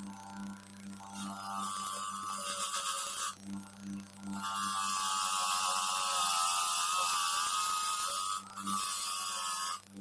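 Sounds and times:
grinder motor hum: 0.0s - 10.0s.

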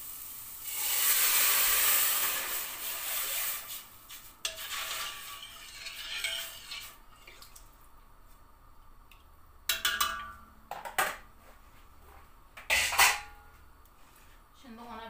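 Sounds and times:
metal spoon stirring soup in pot: 4.5s - 7.5s
metal kitchenware clinking: 9.7s - 11.2s, 12.6s - 13.5s.

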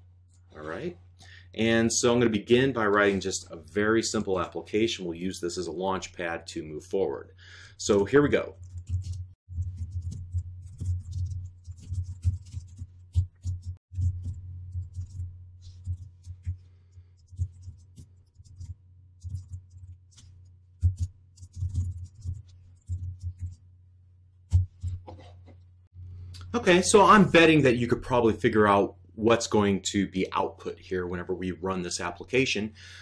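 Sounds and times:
computer keyboard typing: 8.6s - 15.2s.

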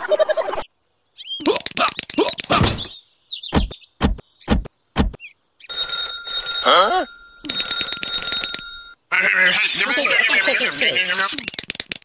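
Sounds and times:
telephone ringing: 5.7s - 9.0s.

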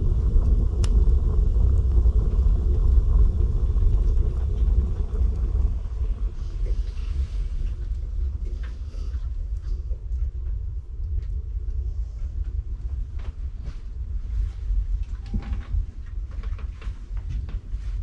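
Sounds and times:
fire crackle: 0.0s - 18.0s
stove draft rumbling: 0.0s - 18.0s.

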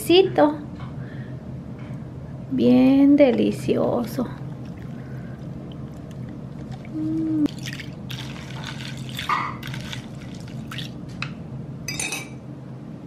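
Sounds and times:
ice clinking with spoon stirring: 7.5s - 10.9s
coffee poured over ice: 7.5s - 11.0s.

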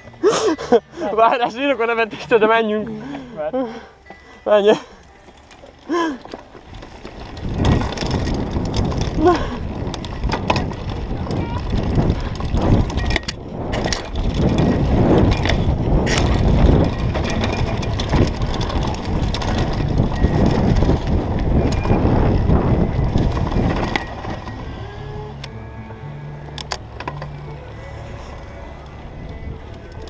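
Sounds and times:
mountain bike rattling over bumps: 4.5s - 30.0s.

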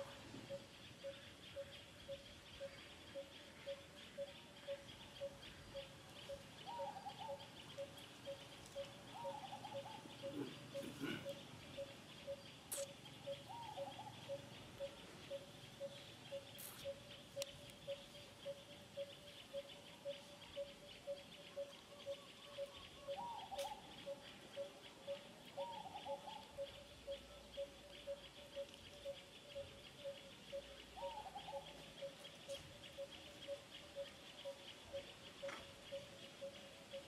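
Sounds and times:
insect buzz: 7.2s - 22.8s.

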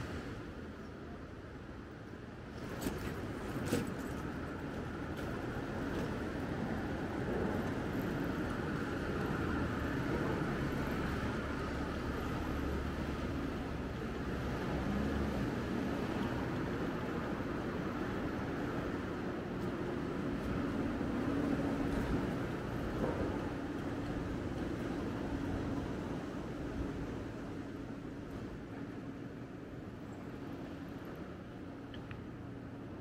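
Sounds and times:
passing vehicles: 2.5s - 28.7s.

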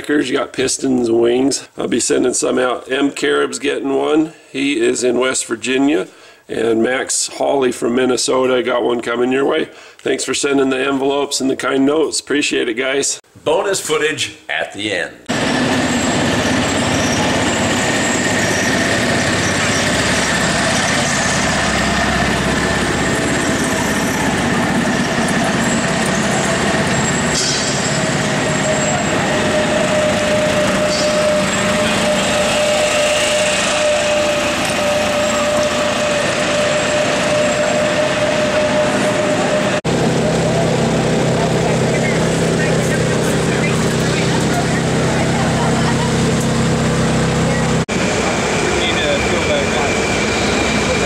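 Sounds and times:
busy exhibition hall rush: 15.3s - 51.0s.

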